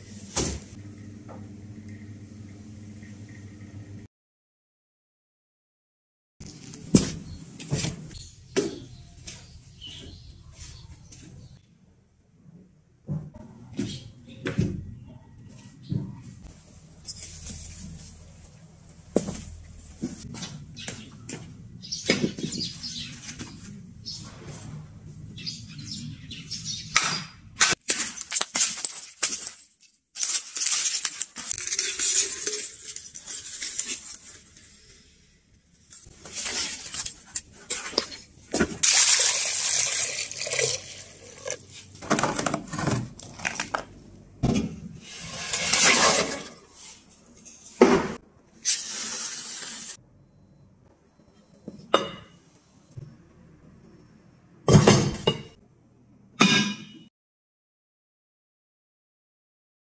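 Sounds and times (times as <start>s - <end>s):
rustling and scraping handling noises: 15.5s - 25.3s, 27.9s - 38.8s.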